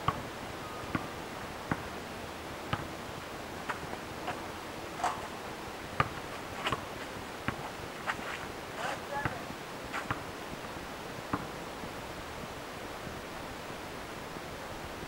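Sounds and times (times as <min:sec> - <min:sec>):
outdoor hiss: 0:00.0 - 0:15.0
basketball bouncing on asphalt: 0:00.9 - 0:01.1, 0:01.7 - 0:02.0, 0:02.7 - 0:02.9, 0:05.0 - 0:07.7, 0:10.0 - 0:10.2
footsteps: 0:03.6 - 0:09.1.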